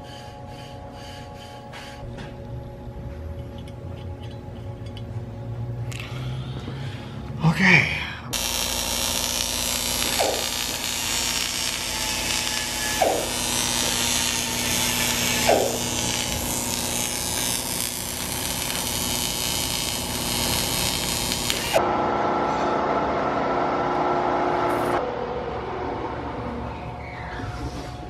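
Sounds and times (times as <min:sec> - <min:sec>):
welding arc buzzing hiss: 0:08.4 - 0:21.8.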